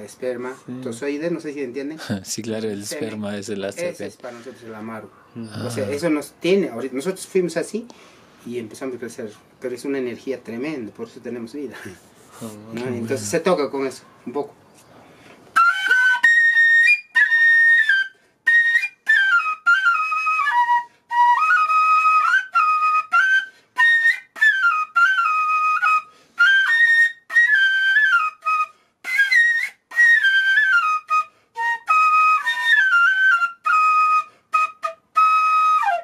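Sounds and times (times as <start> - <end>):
flute melody: 15.5 - 36.0.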